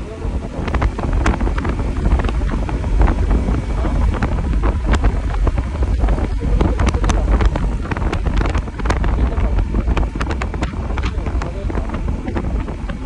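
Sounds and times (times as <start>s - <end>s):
wind buffeting microphone: 0.0s - 13.0s.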